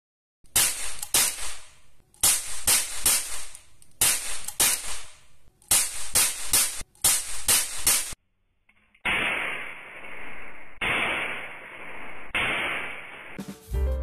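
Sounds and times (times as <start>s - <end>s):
cap gun pops: 0.6s - 8.2s.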